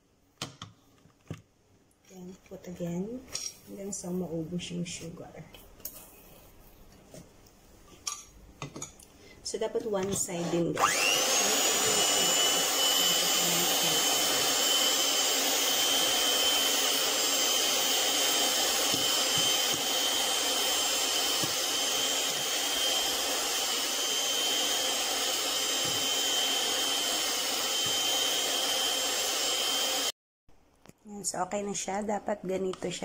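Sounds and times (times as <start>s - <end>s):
electric hand mixer running: 10.2s - 30.2s.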